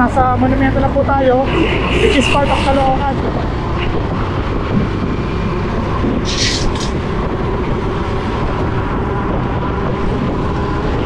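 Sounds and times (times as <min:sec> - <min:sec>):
road traffic rumble: 0:00.0 - 0:11.0
wind rushing over microphone: 0:00.0 - 0:11.0
short hiss: 0:06.3 - 0:06.9.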